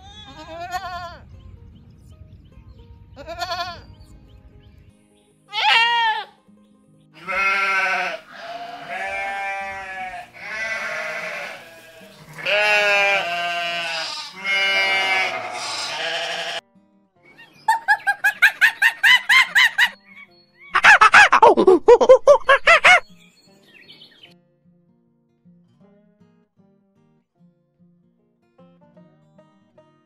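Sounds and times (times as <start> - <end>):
farm animal bleating: 0.0 - 1.2, 3.2 - 4.0, 5.5 - 6.4, 7.2 - 16.6
soft background music: 0.0 - 20.7.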